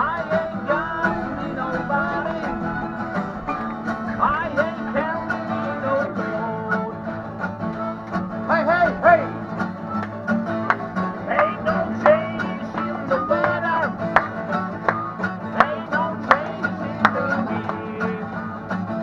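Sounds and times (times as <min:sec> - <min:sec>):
acoustic guitars strumming: 0:00.0 - 0:19.0
plucked string instrument: 0:00.0 - 0:19.0.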